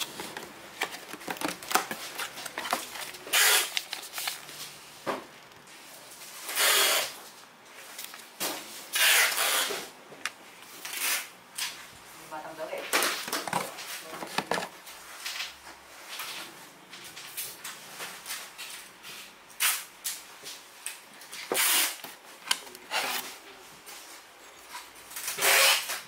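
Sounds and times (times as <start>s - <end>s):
cardboard and paper rustling: 0.0s - 6.3s, 12.8s - 18.7s.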